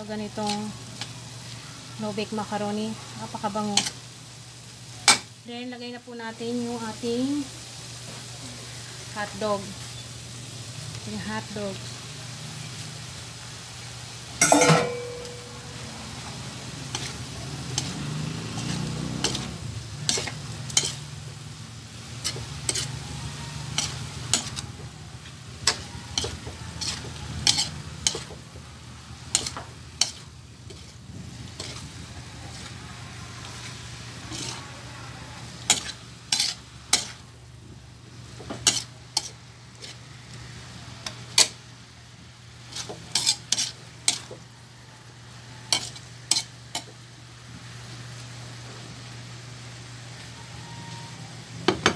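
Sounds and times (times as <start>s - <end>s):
food sizzling: 0.0s - 51.9s
metal spatula clanking on wok: 14.4s - 15.6s, 18.6s - 19.5s, 20.1s - 21.1s, 22.2s - 23.0s, 23.7s - 24.6s, 25.6s - 28.4s, 29.3s - 30.9s, 35.6s - 37.2s, 38.6s - 39.3s, 45.7s - 46.9s.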